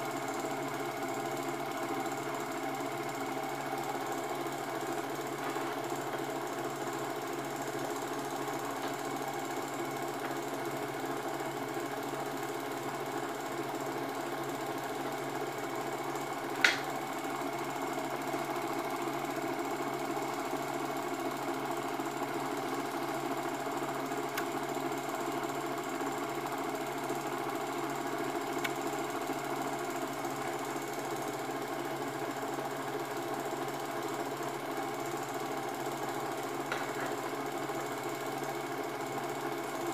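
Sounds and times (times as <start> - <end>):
film projector clatter: 0.0 - 39.9.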